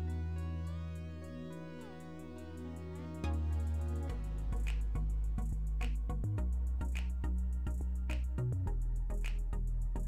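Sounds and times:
background music with bass: 0.0 - 10.0.

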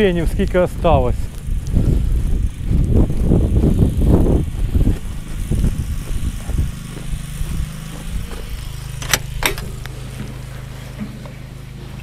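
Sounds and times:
footsteps in snow: 0.0 - 12.0
generator humming: 0.0 - 12.0
sharp clicks: 8.6 - 10.0.

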